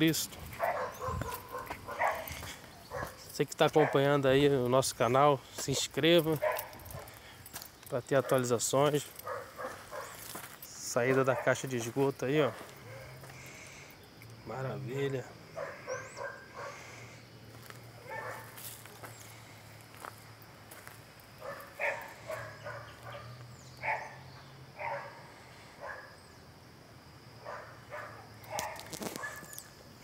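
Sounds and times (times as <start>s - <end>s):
dog barking: 0.6s - 4.1s, 6.4s - 7.2s, 9.2s - 10.2s, 11.2s - 11.6s, 15.6s - 16.9s, 18.0s - 19.0s, 21.4s - 24.2s, 24.8s - 26.1s, 27.4s - 29.5s.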